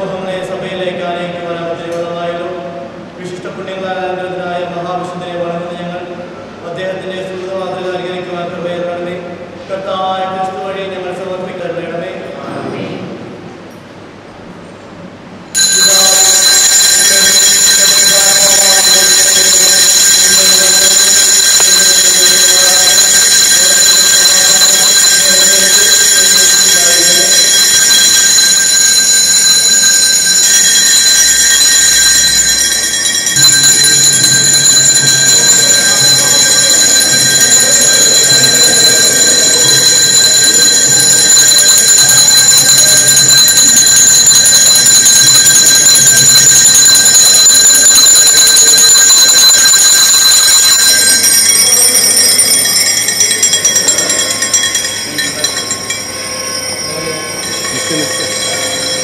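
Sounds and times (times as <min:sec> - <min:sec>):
bells ringing rapidly: 0:00.0 - 0:00.6, 0:15.5 - 0:59.0.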